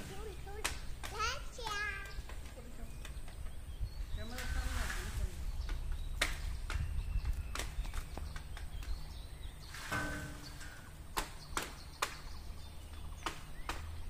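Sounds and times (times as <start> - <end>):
wind rumbling on microphone: 2.1 - 11.5.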